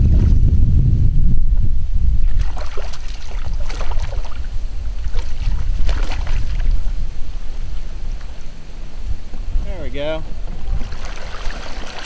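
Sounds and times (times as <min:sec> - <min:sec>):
low wind rumble on microphone: 0:00.0 - 0:12.0
fish thrashing and splashing water: 0:02.2 - 0:06.8, 0:10.7 - 0:12.0.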